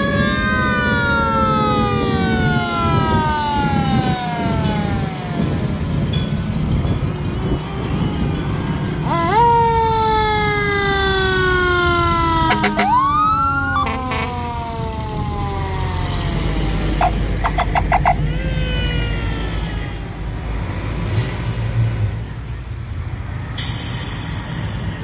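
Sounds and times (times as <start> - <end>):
second siren gliding up: 0.0 - 6.1, 7.4 - 20.0
mechanical siren wailing: 0.0 - 20.2
truck engines rumbling: 0.0 - 25.0.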